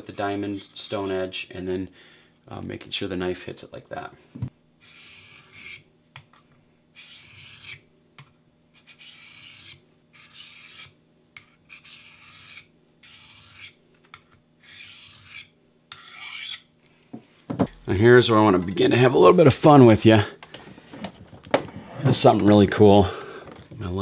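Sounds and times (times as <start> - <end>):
blade scraping on sharpener: 4.8 - 5.9, 7.0 - 7.8, 8.8 - 13.8, 14.6 - 16.7.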